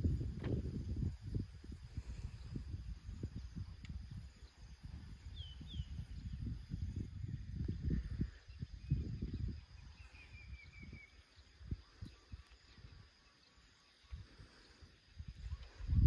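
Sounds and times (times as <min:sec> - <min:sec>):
wind buffeting microphone: 0:00.0 - 0:13.2, 0:14.0 - 0:16.0.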